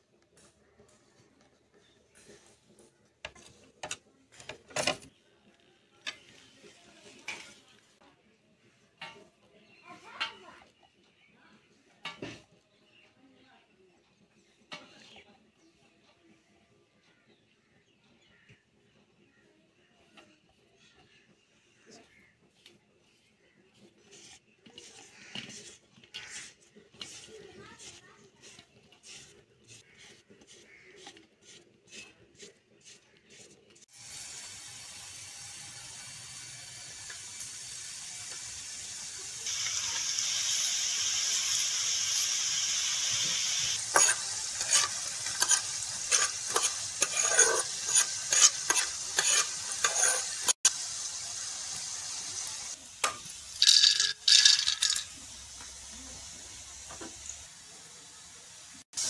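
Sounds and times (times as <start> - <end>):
dough sizzling in hot oil: 21.1 - 59.0
utensil clinking and scraping pan: 23.5 - 33.9, 42.8 - 50.6, 53.0 - 55.2.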